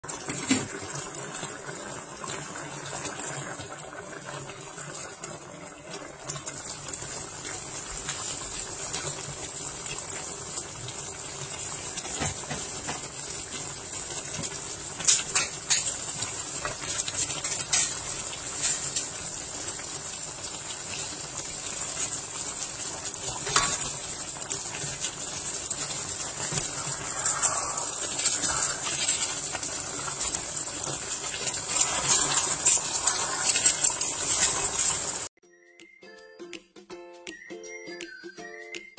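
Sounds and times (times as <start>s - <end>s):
stew bubbling in a wok: 0.0s - 35.3s
spatula stirring stew: 21.3s - 35.3s.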